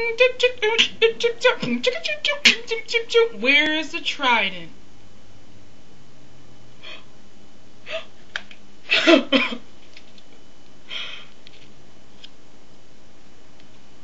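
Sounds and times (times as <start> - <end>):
person gasping: 6.8 - 7.1, 7.8 - 8.1, 10.9 - 11.3
person breathing in huffs: 10.9 - 11.4.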